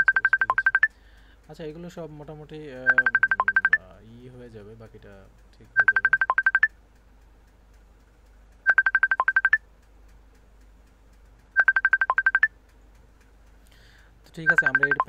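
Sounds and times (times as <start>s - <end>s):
electronic phone ringtone beeps: 0.0s - 0.9s, 2.8s - 3.8s, 5.8s - 6.7s, 8.7s - 9.6s, 11.6s - 12.5s, 14.4s - 15.0s.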